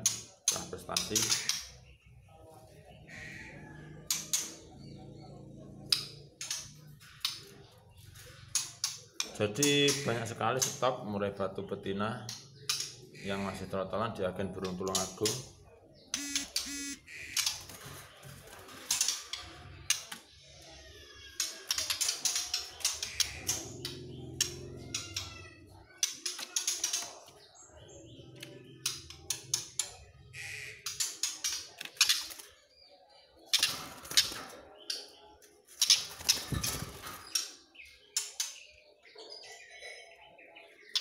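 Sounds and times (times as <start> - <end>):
bird chirps: 14.7 - 17.8, 19.0 - 41.0.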